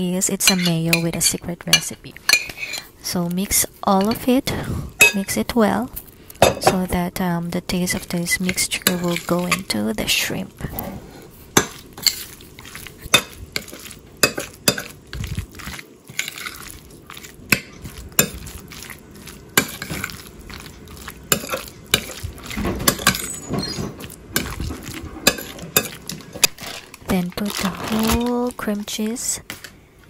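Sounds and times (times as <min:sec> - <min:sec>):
metal spoon clinking in a bowl: 0:22.9 - 0:23.8.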